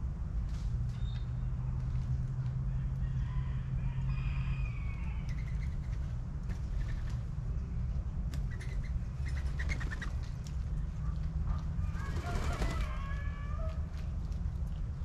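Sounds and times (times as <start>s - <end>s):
steady low rumble: 0.0s - 12.3s
small birds chirping: 5.2s - 11.3s
wings flapping: 8.3s - 10.8s, 11.8s - 13.8s.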